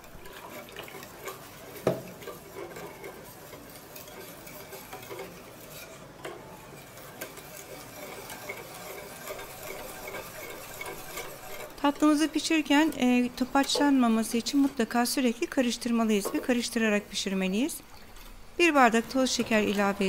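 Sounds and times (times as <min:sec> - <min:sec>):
whisk swishing in a pot: 0:00.0 - 0:20.0
whisk tines clicking on pot: 0:00.0 - 0:20.0.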